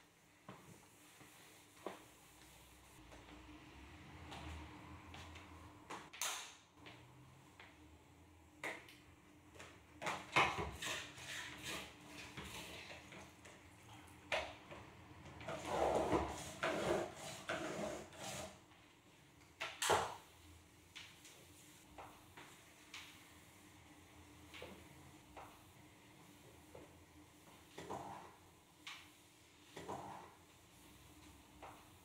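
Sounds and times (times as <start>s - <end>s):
mop scraping through wringer: 10.0s - 13.4s, 15.4s - 18.7s, 29.4s - 31.9s.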